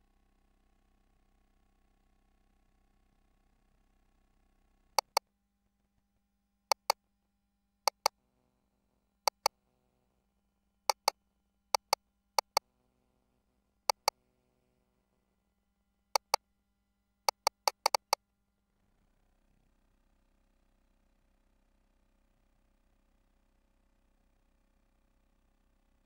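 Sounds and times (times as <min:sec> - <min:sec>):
sharp paired clicks: 0:05.0 - 0:05.2, 0:06.7 - 0:07.0, 0:07.9 - 0:08.1, 0:09.3 - 0:09.5, 0:10.9 - 0:11.1, 0:11.8 - 0:12.6, 0:13.9 - 0:14.1, 0:16.2 - 0:16.4, 0:17.3 - 0:18.2.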